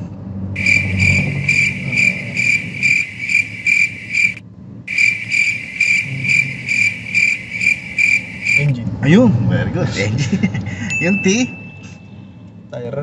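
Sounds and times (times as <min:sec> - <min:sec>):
car warning chime beeping: 0:00.6 - 0:08.7.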